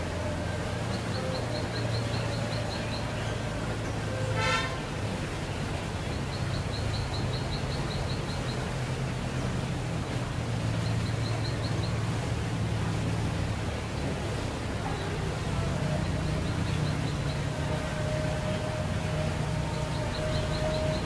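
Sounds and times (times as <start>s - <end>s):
vehicle horn toot: 4.1s - 5.0s.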